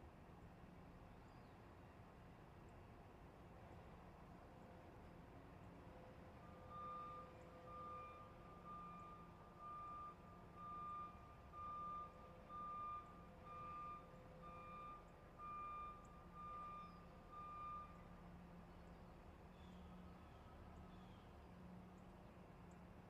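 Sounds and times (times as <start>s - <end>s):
truck warning beeps: 6.4s - 18.4s.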